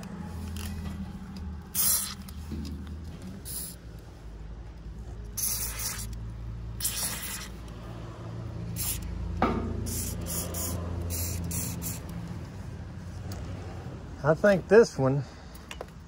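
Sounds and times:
aerosol spray hissing: 1.7s - 2.3s, 5.4s - 6.2s, 6.8s - 7.6s, 8.7s - 9.1s, 9.9s - 12.1s.

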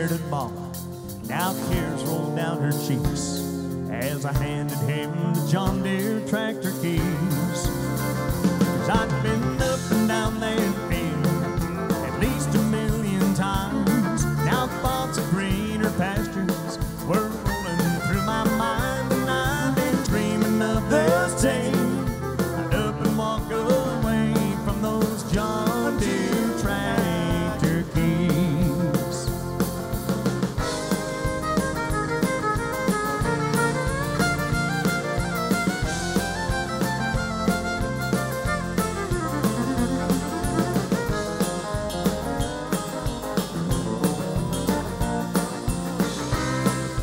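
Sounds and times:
person singing: 0.0s - 7.9s, 8.8s - 29.6s
bass: 0.0s - 47.0s
electric guitar: 0.0s - 47.0s
fiddle: 0.0s - 47.0s
live country band playing: 0.0s - 47.0s
drum beat: 6.8s - 47.0s.

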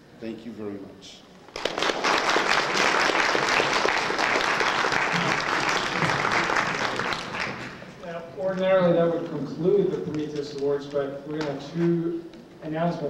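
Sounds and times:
audience applauding: 1.5s - 7.9s.

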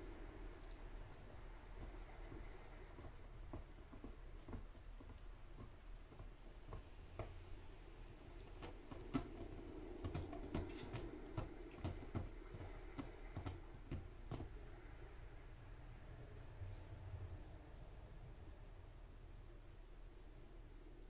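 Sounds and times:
kitten claws scratching: 0.1s - 15.0s.

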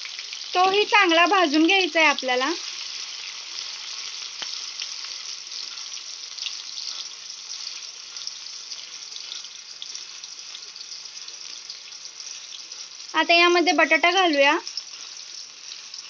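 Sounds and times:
vegetables sizzling in hot oil: 0.0s - 16.0s.

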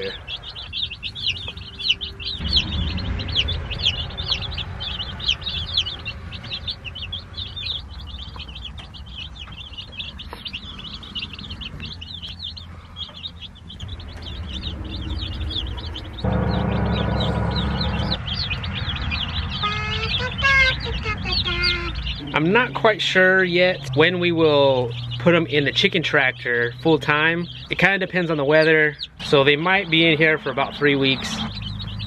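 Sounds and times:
low rumble: 0.0s - 28.0s
chicks peeping: 0.0s - 32.0s.

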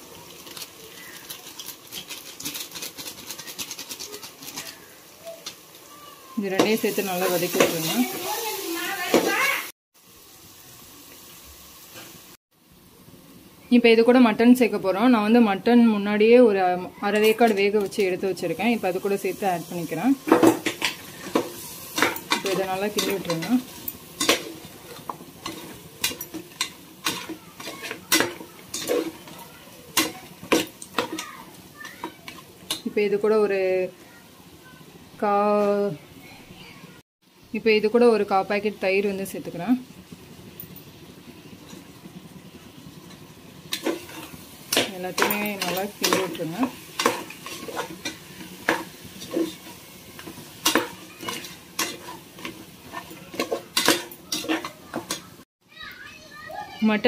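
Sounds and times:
low sizzle of frying: 0.0s - 57.0s
metal spatula scraping a pot: 0.3s - 5.6s, 20.2s - 32.9s, 43.1s - 55.4s.

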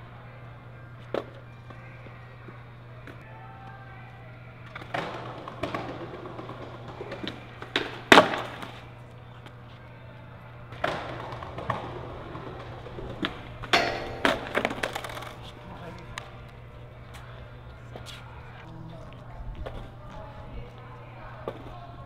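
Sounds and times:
skateboard wheels rolling: 4.6s - 9.8s, 10.7s - 18.6s
skateboard slapping on concrete: 4.7s - 8.8s, 10.7s - 16.0s.

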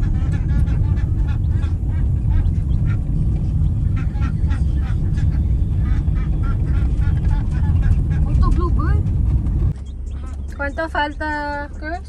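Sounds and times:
ducks quacking: 0.0s - 8.8s
vehicle rumble: 0.0s - 12.0s.

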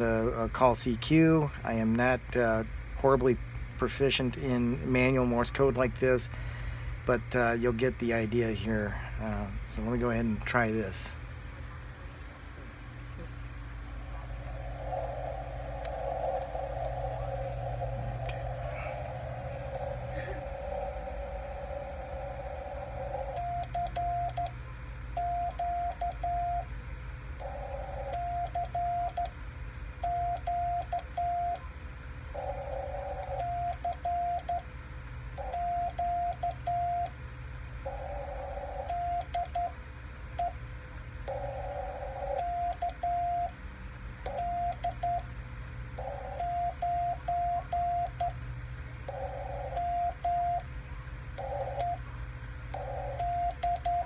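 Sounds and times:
morse code tone: 15.8s - 24.5s, 25.2s - 26.7s, 27.4s - 29.3s, 30.0s - 31.7s, 32.4s - 34.6s, 35.4s - 37.1s, 37.8s - 39.8s, 41.3s - 43.5s, 44.3s - 45.2s, 46.0s - 48.4s, 49.1s - 50.6s, 51.4s - 52.0s, 52.7s - 54.0s.

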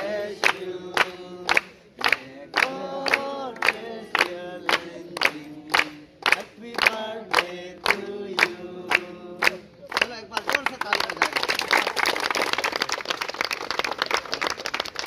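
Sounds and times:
group singing a birthday song: 0.0s - 9.9s
people clapping in time: 0.0s - 15.0s.

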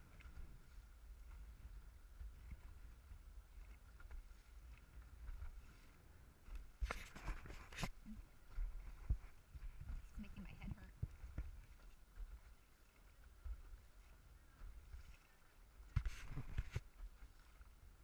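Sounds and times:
wind rumble on microphone: 0.0s - 18.0s
paddles splashing in water: 10.9s - 18.0s.

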